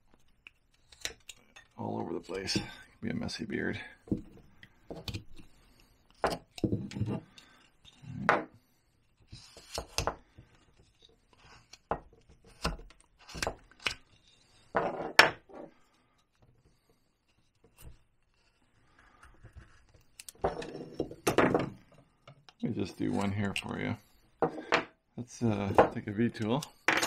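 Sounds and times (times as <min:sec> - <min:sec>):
carving gouge scraping wood: 0:08.6 - 0:14.6, 0:16.7 - 0:21.0.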